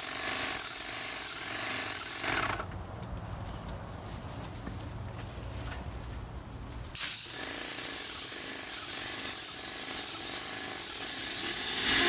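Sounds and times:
paint sprayer hissing: 0.0 - 2.2, 7.0 - 12.0.

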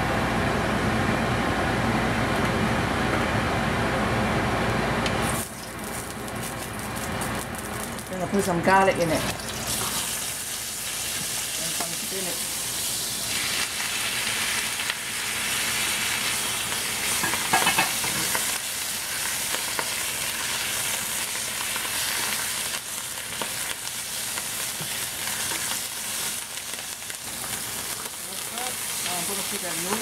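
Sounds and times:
spinach sizzling in hot oil: 5.2 - 30.0.

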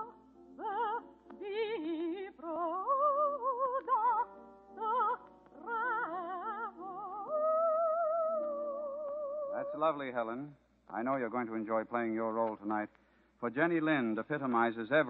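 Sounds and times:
operatic soprano singing: 0.0 - 9.8
musical accompaniment: 0.0 - 10.0.

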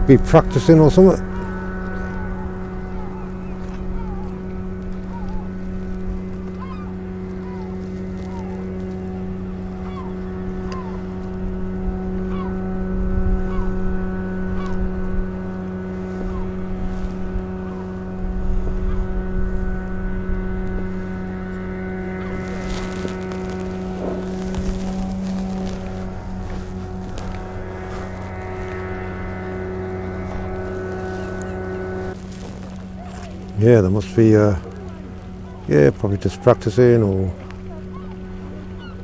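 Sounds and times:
low rumble: 0.0 - 35.7
steady mechanical hum: 0.0 - 39.0
birds short falling calls: 1.2 - 5.7, 6.4 - 11.2, 16.0 - 16.6.

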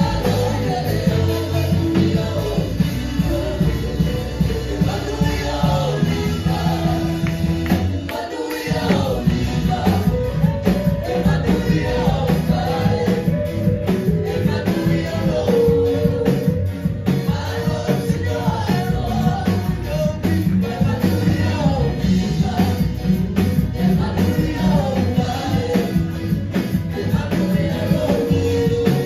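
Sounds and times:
worship band singing over guitar: 0.0 - 29.0.

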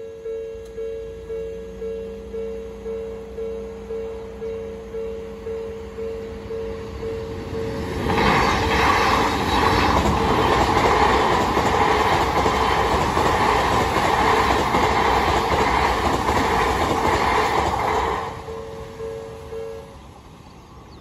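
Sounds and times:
crossing warning bell ringing: 0.0 - 8.8, 18.0 - 20.1
train wheels on rails: 4.4 - 20.4.

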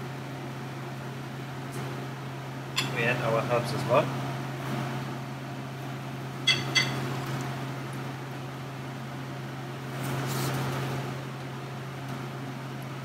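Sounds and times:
low steady hum: 0.0 - 9.8.

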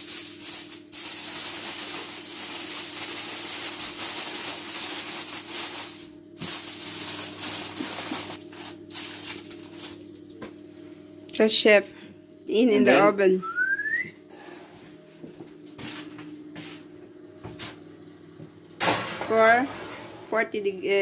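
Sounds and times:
aluminium foil crinkling: 0.0 - 10.4.

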